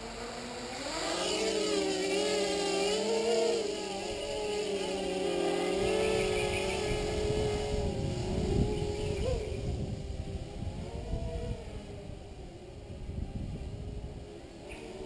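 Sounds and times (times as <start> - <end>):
drone propellers whining: 0.0 - 15.0.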